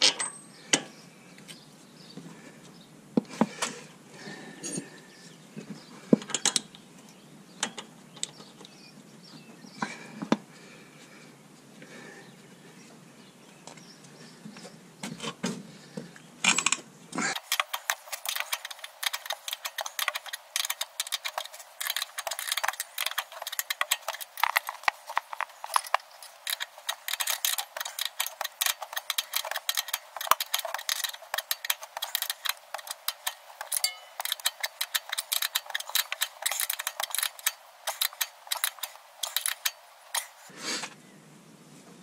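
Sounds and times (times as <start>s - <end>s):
ratcheting spanner clicking: 16.5s - 40.5s.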